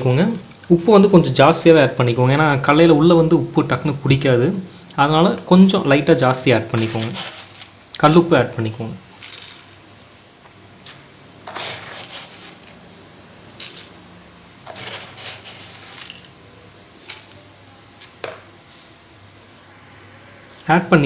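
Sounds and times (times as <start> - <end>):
spoon scraping salt: 6.7 - 7.8, 10.8 - 12.8, 13.5 - 14.0, 14.6 - 16.4
salt pattering into a pot: 6.7 - 8.0, 10.8 - 18.5.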